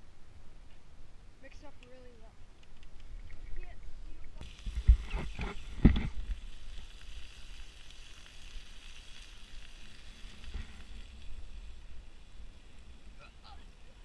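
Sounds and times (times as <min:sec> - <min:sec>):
sausages and egg sizzling: 0:04.1 - 0:14.0.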